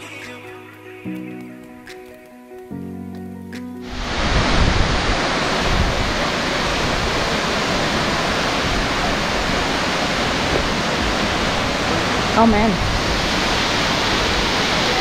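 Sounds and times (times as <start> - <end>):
waterfall rushing: 3.8 - 15.0.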